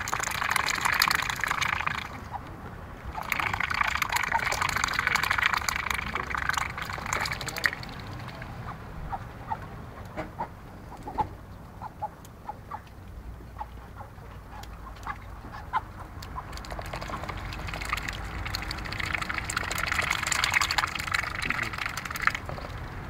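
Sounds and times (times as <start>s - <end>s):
ducks dabbling bills in water: 0.0s - 9.6s, 13.6s - 23.0s
soft duck calls: 3.1s - 12.9s.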